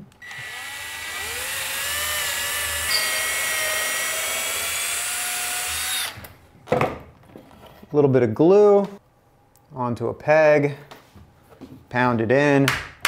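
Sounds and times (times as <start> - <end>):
cordless drill boring wood: 0.2 - 6.3.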